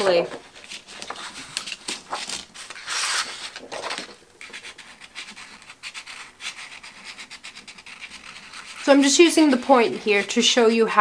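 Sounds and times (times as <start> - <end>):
crayon scratching on paper: 4.4 - 11.0.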